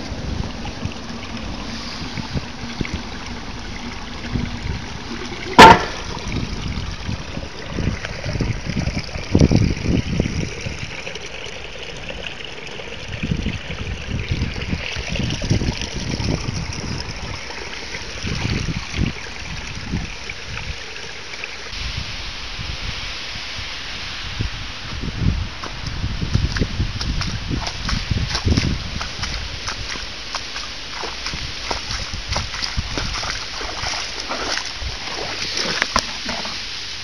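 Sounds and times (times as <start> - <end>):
water trickling into drain: 0.0 - 21.8, 25.0 - 37.0
sharp knock: 5.6 - 6.0.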